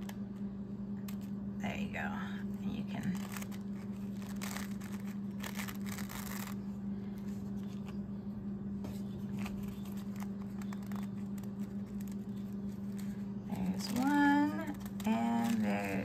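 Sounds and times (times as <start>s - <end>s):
steady low hum: 0.0s - 16.0s
paper napkin rustling: 3.0s - 8.1s, 8.8s - 16.0s.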